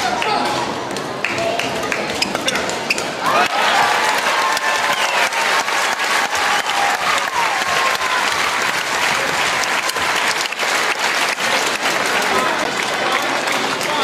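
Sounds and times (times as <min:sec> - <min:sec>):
crowd applauding: 0:03.2 - 0:14.0.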